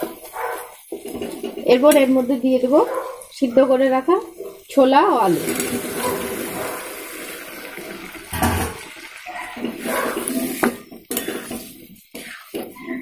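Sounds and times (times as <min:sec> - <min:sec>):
food splashing into hot oil: 0:05.1 - 0:11.4
steel spatula scraping a pan: 0:08.4 - 0:13.0.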